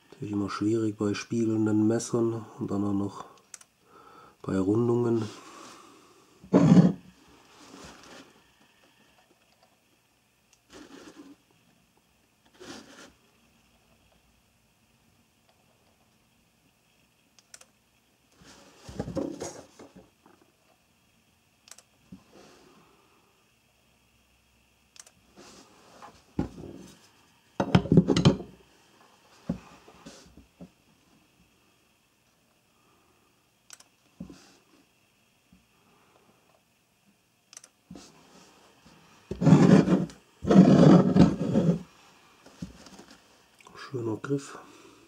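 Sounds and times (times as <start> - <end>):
faint rustling scrapes of handling: 7.2 - 8.6, 10.7 - 11.4, 12.5 - 13.2.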